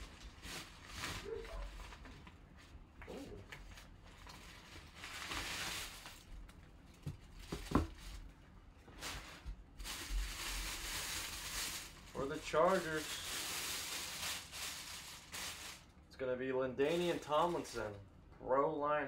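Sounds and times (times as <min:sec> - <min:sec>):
bag and plastic wrap rustling: 0:00.0 - 0:02.8, 0:03.6 - 0:16.0, 0:16.9 - 0:18.0.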